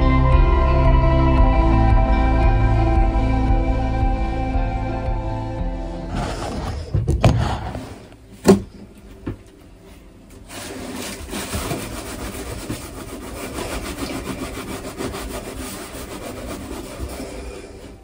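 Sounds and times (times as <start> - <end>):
cloth scrubbing ceramic tiles: 10.5 - 17.5.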